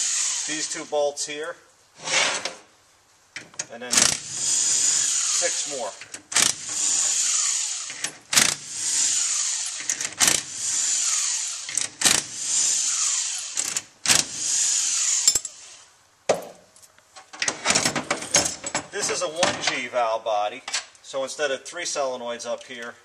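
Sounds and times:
power screwdriver whirring: 0.0s - 0.8s, 4.0s - 15.8s.

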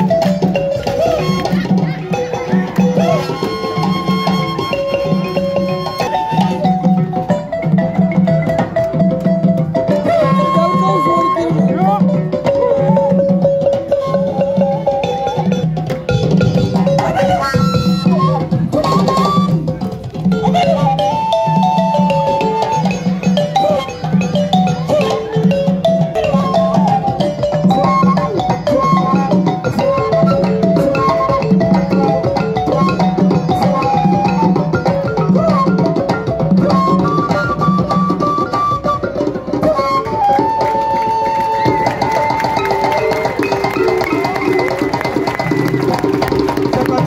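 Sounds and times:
djembe hand drums: 0.0s - 47.0s
melody over drums: 0.0s - 47.0s.

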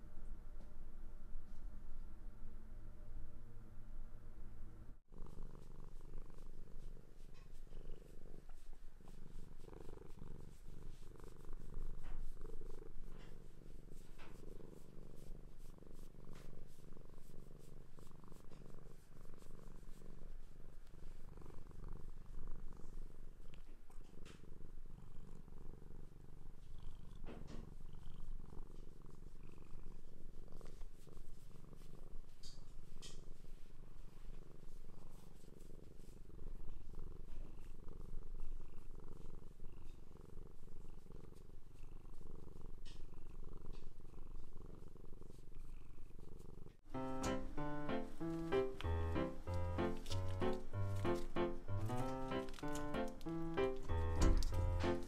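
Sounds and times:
cat purring: 5.1s - 55.0s
faint clicks: 47.2s - 55.0s.

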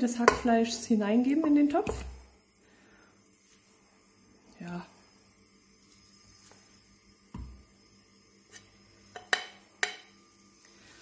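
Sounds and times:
spatula scraping a plate: 8.5s - 9.5s.

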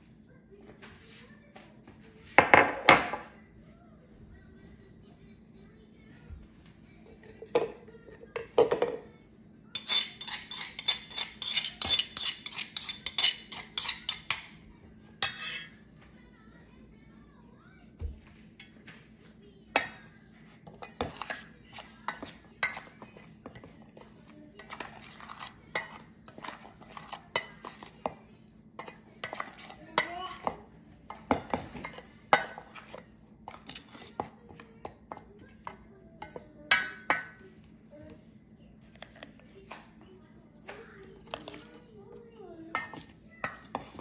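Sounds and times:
metal spoon scraping steel pan: 9.8s - 14.5s, 15.2s - 15.7s, 19.8s - 28.1s, 28.8s - 37.3s, 42.7s - 44.0s.

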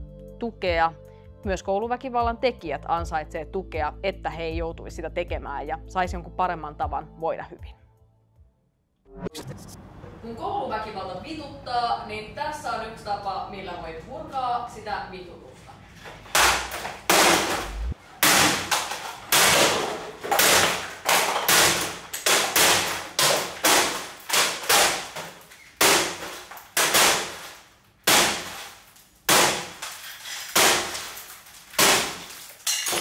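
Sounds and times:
blunt tools smashing electronics: 16.4s - 33.0s.

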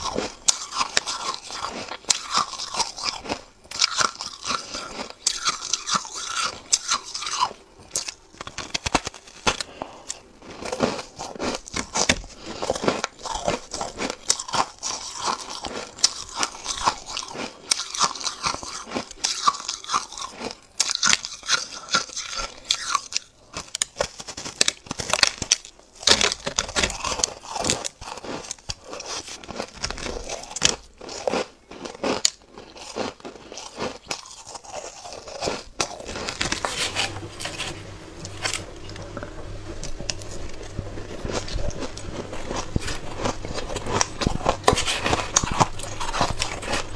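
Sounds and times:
chewing ice crunching: 0.0s - 46.9s.

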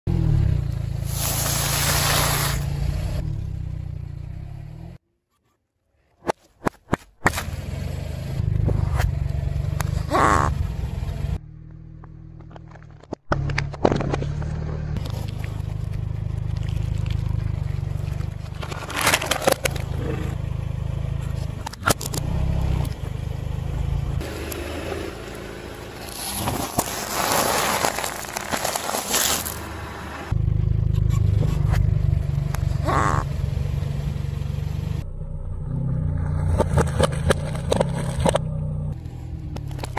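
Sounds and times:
car engine running: 7.3s - 26.7s, 29.4s - 39.9s
tyre crushing objects: 26.2s - 29.7s.

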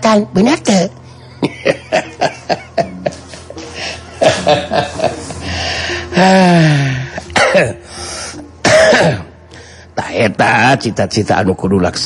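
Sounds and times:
man laughing: 1.4s - 5.5s.

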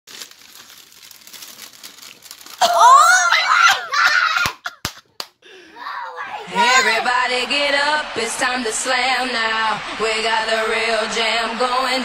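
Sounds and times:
paper rustling and crinkling: 0.1s - 2.7s
loud voice crying out: 2.6s - 4.6s.

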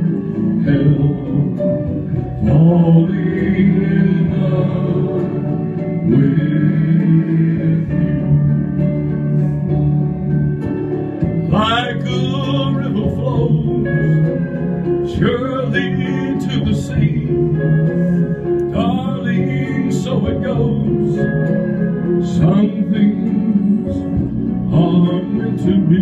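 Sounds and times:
man singing into a microphone: 0.0s - 9.6s, 11.4s - 26.0s
guitar accompaniment: 0.0s - 26.0s.

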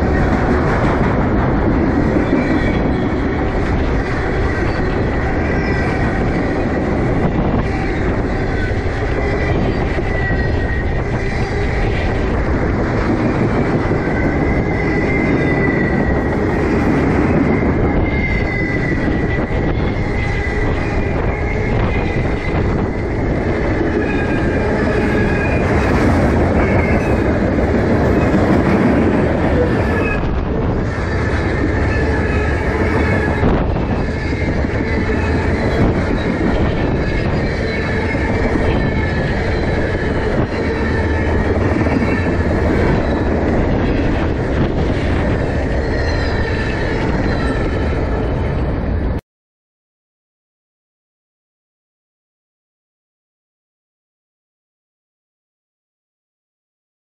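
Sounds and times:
train wheels rumbling on rail: 0.0s - 49.2s
high wheel squeal: 1.9s - 12.4s, 13.4s - 48.6s.

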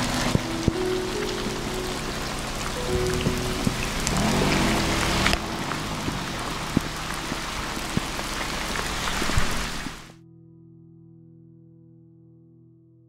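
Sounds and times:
car driving on wet road: 0.0s - 10.1s
steady rain: 0.0s - 10.1s
water drips: 0.0s - 10.1s.

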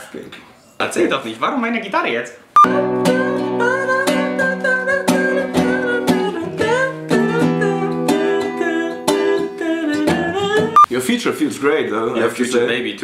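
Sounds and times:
acoustic guitar strummed: 2.7s - 10.8s.

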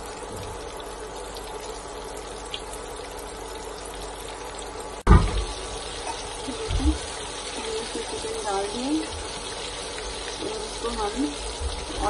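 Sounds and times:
chicken deep-frying in oil: 0.0s - 12.0s
loud thump: 5.1s - 5.5s.

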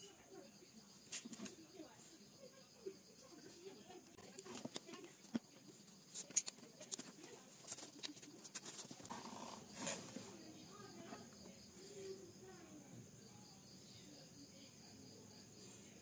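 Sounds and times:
wooden pencils clicking and tapping: 4.2s - 9.2s.

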